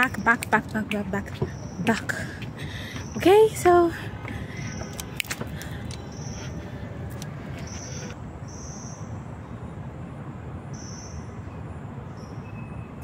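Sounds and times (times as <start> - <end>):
insects buzzing: 0.0 - 9.0
steady low rumble: 0.0 - 12.0.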